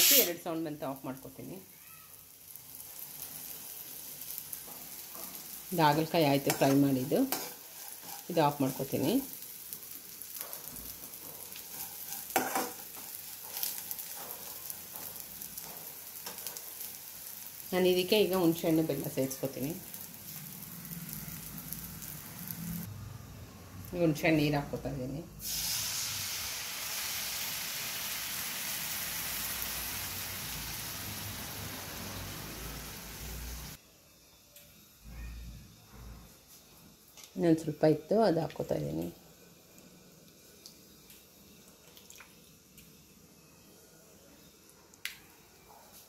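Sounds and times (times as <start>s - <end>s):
metal spoon scraping pan: 0.0s - 0.4s, 6.4s - 8.5s, 11.6s - 15.1s
gourd slices sizzling in oil: 0.0s - 23.0s, 23.8s - 34.3s, 36.9s - 43.7s.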